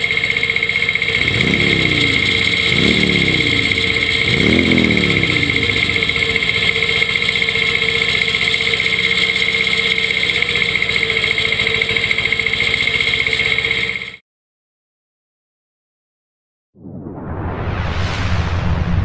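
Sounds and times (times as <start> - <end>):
mower high whine: 0.0 - 14.2
tractor diesel engine running: 0.0 - 14.2.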